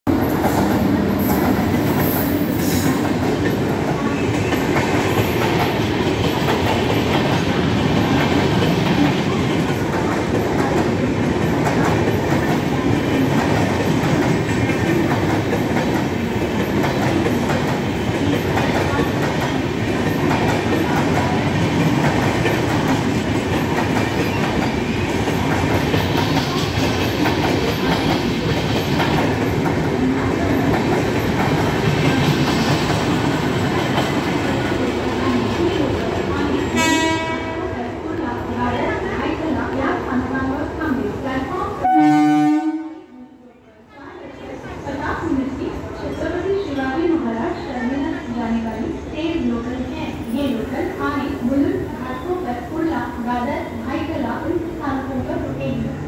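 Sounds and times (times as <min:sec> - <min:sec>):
train rumbling past: 0:00.1 - 0:43.0.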